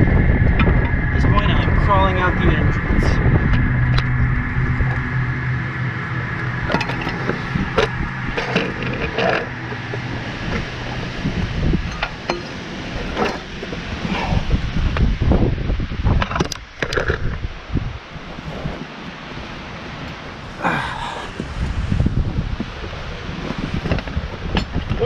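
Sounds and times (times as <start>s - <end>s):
steady low rumble: 0.0s - 25.0s
gear scraping and clinking on rock: 6.7s - 11.2s, 11.8s - 14.4s, 16.2s - 17.4s.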